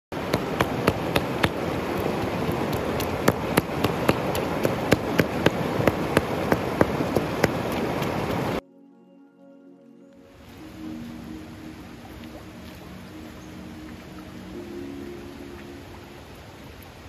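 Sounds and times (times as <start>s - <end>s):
mountain stream rushing: 0.1s - 8.6s, 10.3s - 17.0s
stone pounding meat on rock: 0.2s - 7.6s.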